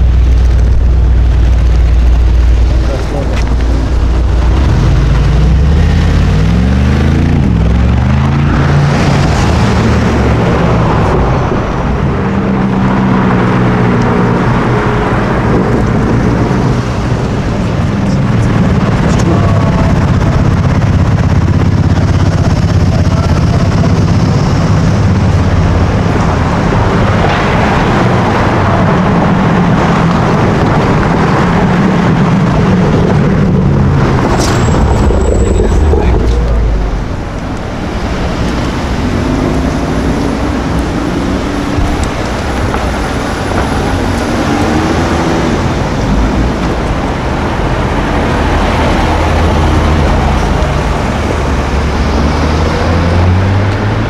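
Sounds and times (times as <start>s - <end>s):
high-performance car engine revving: 0.0s - 54.0s.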